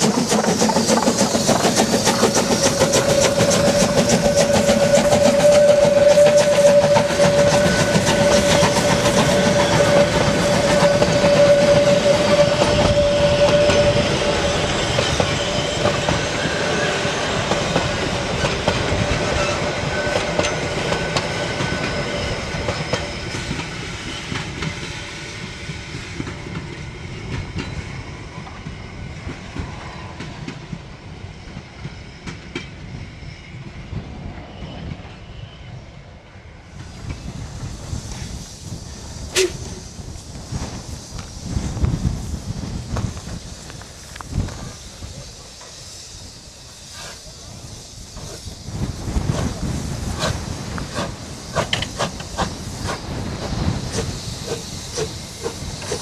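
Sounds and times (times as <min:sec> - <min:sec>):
train wheels clattering over rails: 0:00.0 - 0:30.9, 0:46.8 - 0:56.0
steam locomotive working: 0:00.0 - 0:56.0.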